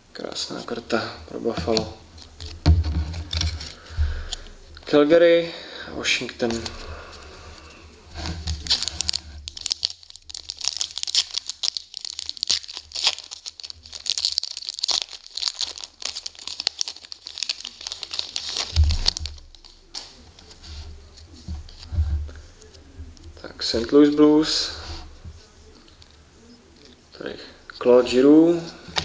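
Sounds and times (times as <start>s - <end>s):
foil wrapper crinkling and tearing: 8.2s - 20.5s.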